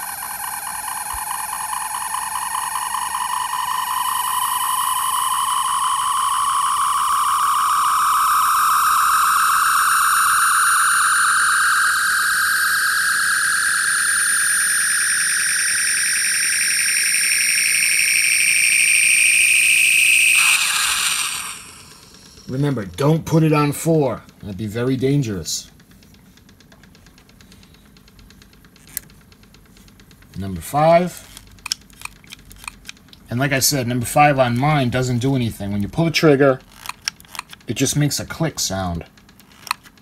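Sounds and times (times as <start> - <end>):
rising electronic whine: 0.0 - 25.4.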